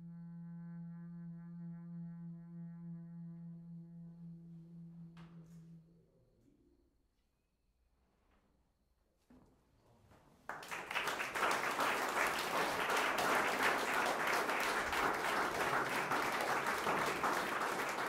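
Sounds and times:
audience applauding: 10.5 - 18.0.

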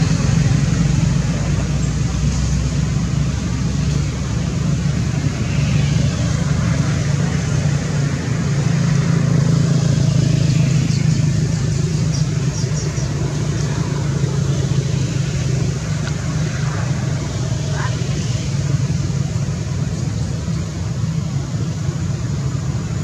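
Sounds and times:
vehicle engine rumbling: 0.0 - 23.0.

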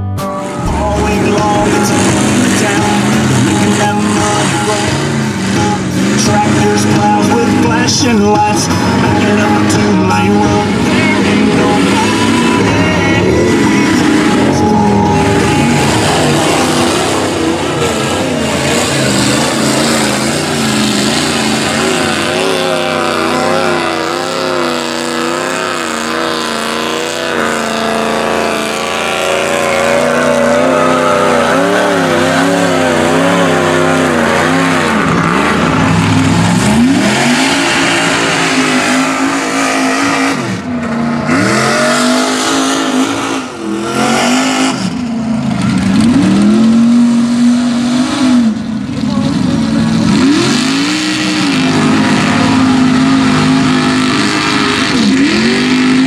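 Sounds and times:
truck engines revving in mud: 0.0 - 56.0.

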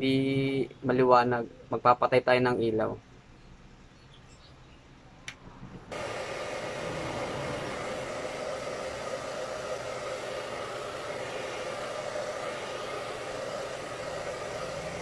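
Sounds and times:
hair dryer blowing: 5.9 - 15.0.

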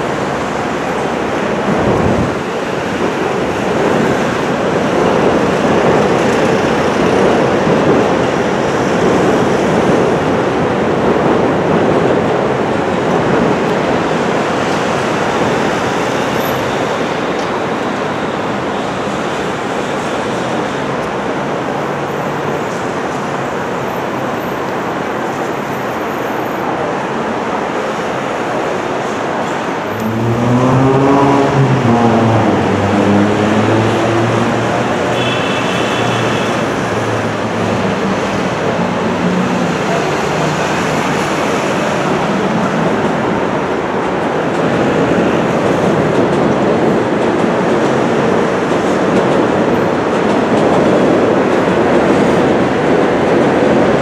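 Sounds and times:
diesel train passing: 0.0 - 54.0.

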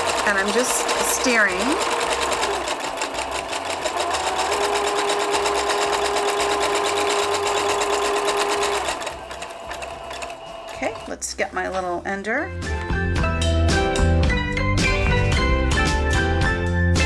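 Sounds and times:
sewing machine stitching: 0.0 - 11.2.

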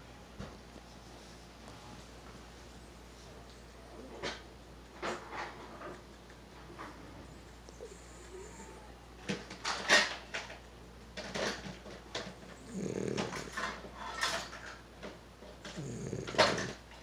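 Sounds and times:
dog snoring: 7.7 - 9.0, 12.2 - 14.7, 15.6 - 16.8.

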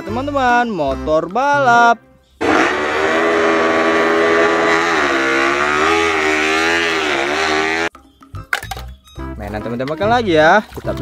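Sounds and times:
motorcycle engine at low revs: 2.4 - 7.9.

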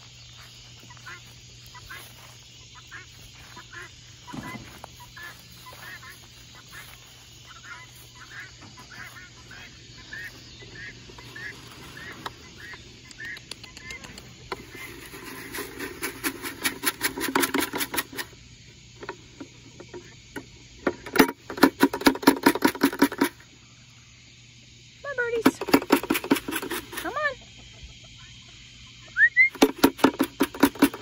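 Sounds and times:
chickens peeping: 0.0 - 20.8, 26.7 - 29.7
chickens clucking rapidly: 0.5 - 23.5, 25.3 - 31.0.

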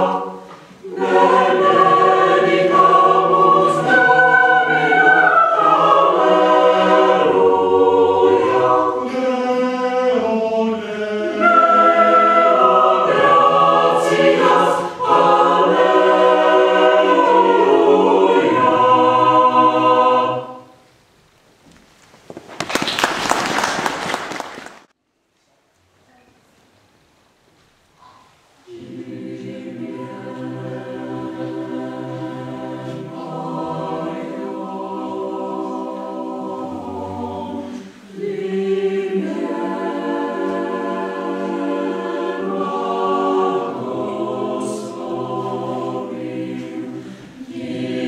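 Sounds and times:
mixed choir singing a cappella: 0.0 - 20.8, 28.6 - 48.0
applause: 22.5 - 24.9.

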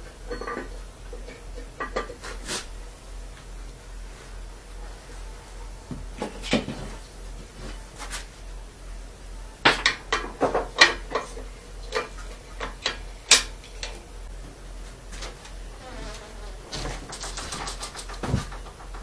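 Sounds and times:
metal tools clinking on engine: 0.3 - 2.2.

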